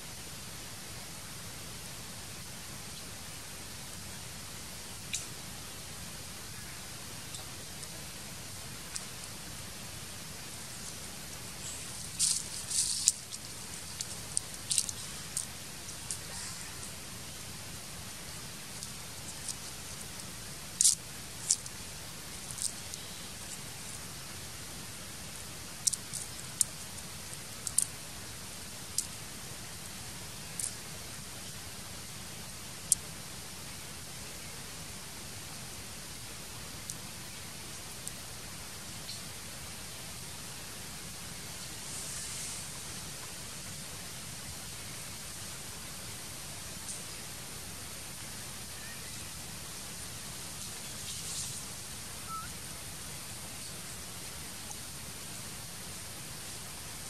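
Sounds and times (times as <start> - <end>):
steady hiss: 0.0 - 57.0
leaves and twigs crackling: 6.5 - 31.2, 48.7 - 52.5.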